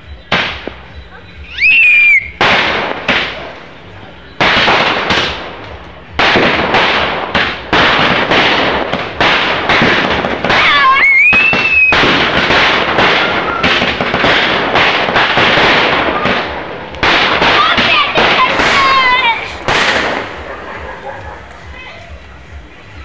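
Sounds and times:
fireworks banging: 0.0 - 23.0
whistling firework gliding tone: 1.4 - 2.4, 10.4 - 16.9.

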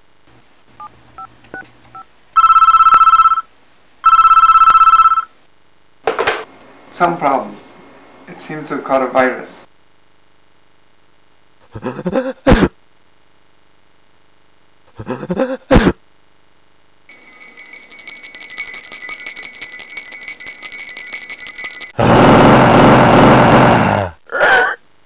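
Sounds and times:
electric bell ringing: 2.4 - 3.5, 4.1 - 5.3, 17.1 - 22.0
harsh burst of noise: 22.0 - 24.2.

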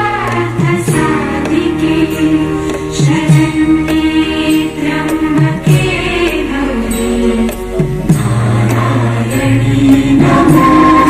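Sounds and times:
chant-like singing over loudspeakers: 0.0 - 11.0
instrumental accompaniment: 0.0 - 11.0.

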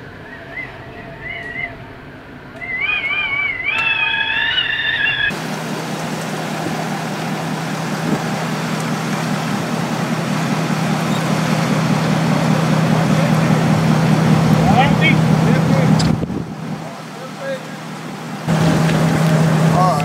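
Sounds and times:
high wavering cry: 0.0 - 5.4
vehicle engine humming: 0.0 - 20.0
steady rushing noise: 5.0 - 20.0.

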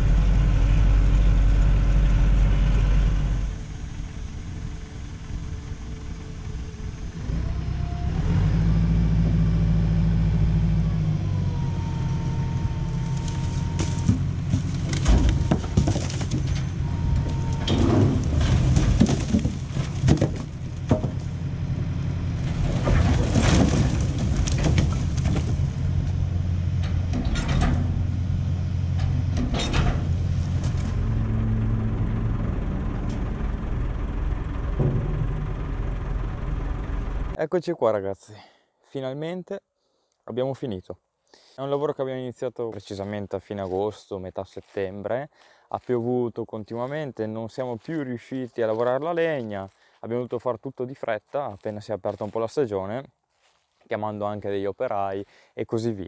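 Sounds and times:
tractor engine revving: 0.0 - 37.4
logs clattering and knocking: 13.0 - 21.4, 22.4 - 26.2.

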